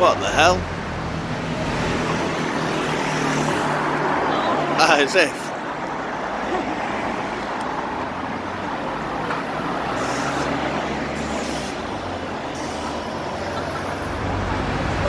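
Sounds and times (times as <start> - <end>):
street traffic noise: 0.0 - 15.0
short air hisses: 9.9 - 10.6, 11.2 - 11.9, 12.5 - 13.2.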